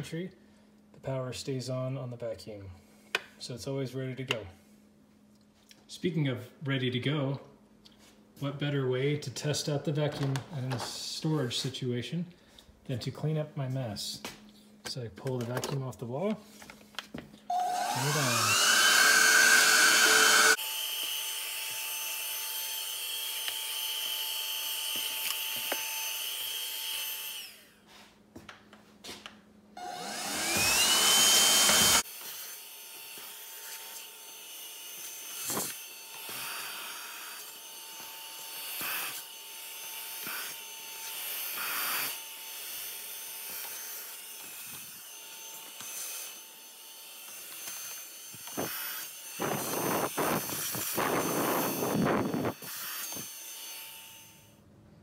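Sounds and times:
handheld vacuum motor whine: 17.5 - 27.8, 29.8 - 54.6.

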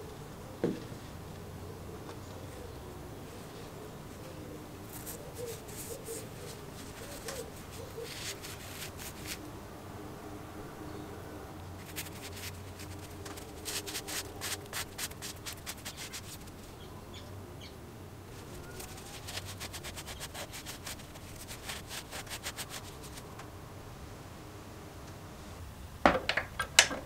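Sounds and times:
towel rubbing on metal: 4.9 - 9.4, 11.8 - 16.6, 18.4 - 23.3.

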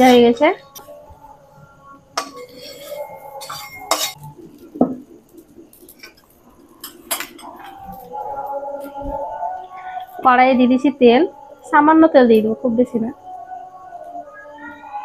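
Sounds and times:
metal spatula clinking on wok: 2.2 - 4.2.

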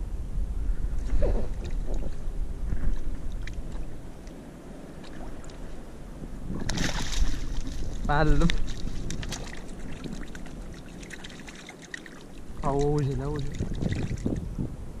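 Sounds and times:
fish splashing at the surface: 6.6 - 14.4.

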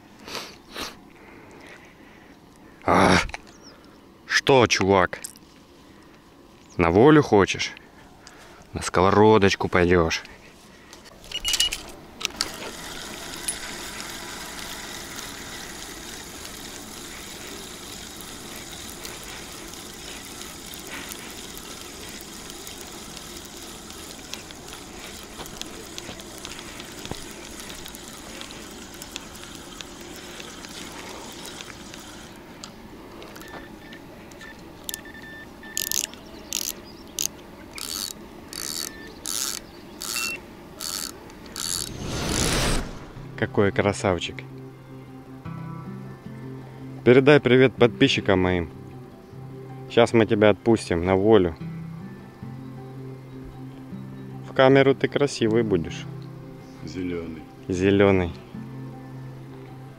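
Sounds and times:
fishing reel whirring: 11.3 - 32.4, 34.8 - 42.6
sharp rasping strokes: 37.8 - 43.2.

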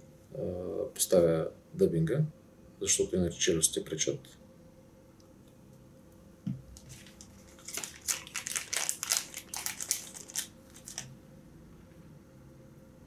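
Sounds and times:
soft knock: 6.4 - 6.7
packet crinkling and rustling: 6.7 - 11.2.

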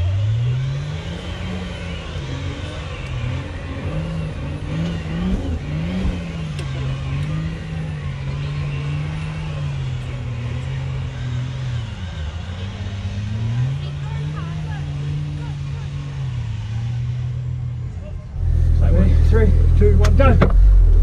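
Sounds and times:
truck engine revving: 0.0 - 21.0.

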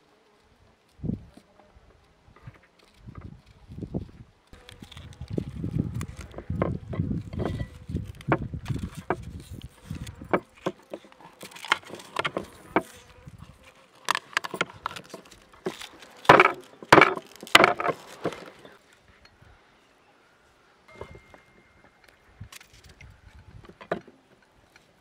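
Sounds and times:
onion skin crackling and tearing: 4.5 - 6.4, 7.2 - 18.6.

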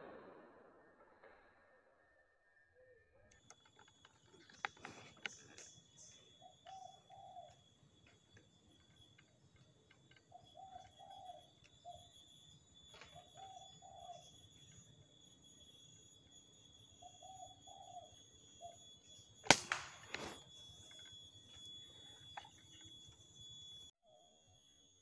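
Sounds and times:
faint steady high tone: 0.9 - 25.0
dove cooing: 4.4 - 8.2, 9.9 - 12.2, 12.9 - 14.4, 17.0 - 19.0
sharp clicks: 19.4 - 21.6.

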